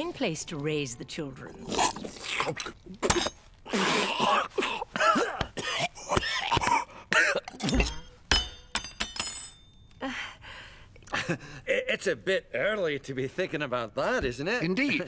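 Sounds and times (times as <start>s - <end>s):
man coughing and choking: 3.0s - 7.8s
metal spoon clattering: 7.5s - 9.9s.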